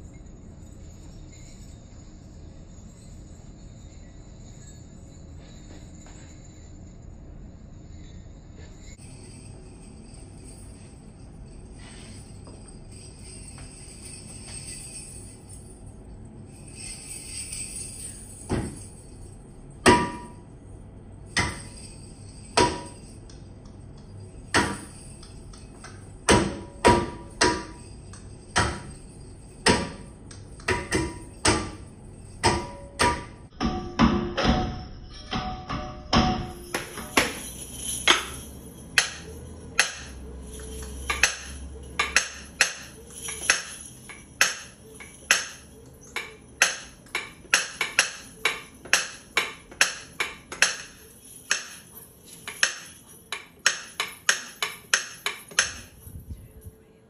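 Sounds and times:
sharp ringing percussive strikes: 21.2 - 55.9.

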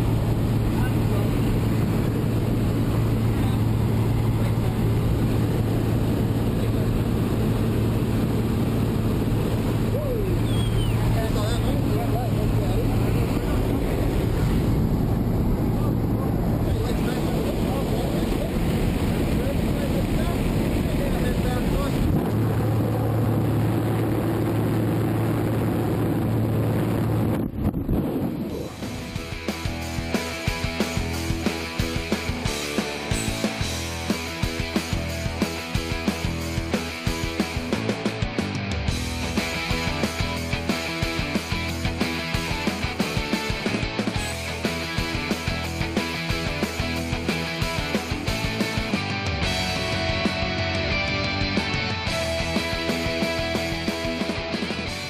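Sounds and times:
light aircraft engine droning: 0.0 - 37.8
wind rushing through open door: 12.6 - 29.2.

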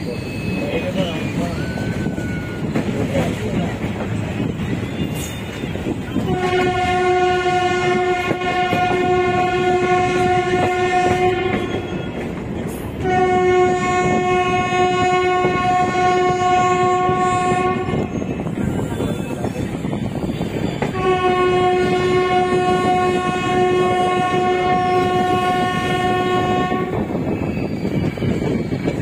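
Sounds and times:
train wheels clattering on track: 0.0 - 29.0
locomotive horn blasts: 6.2 - 11.9, 13.0 - 18.1, 20.8 - 27.1.

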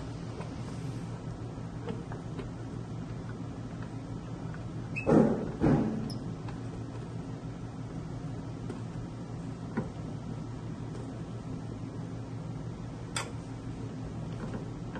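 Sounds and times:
steady low hum: 0.0 - 14.9
loud knocks: 5.1 - 6.1.

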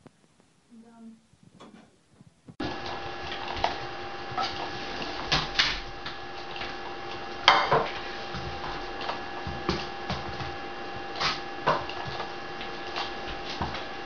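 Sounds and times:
steady hum with thin tones: 0.0 - 14.0
frying pan clattering: 7.5 - 8.5.

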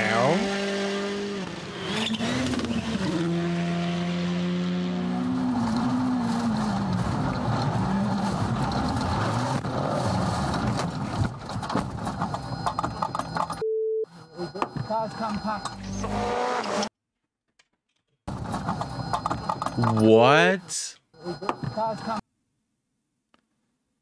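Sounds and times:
rally car engine revving: 0.0 - 11.4, 15.4 - 16.9
road noise: 0.0 - 16.9, 18.3 - 22.2.

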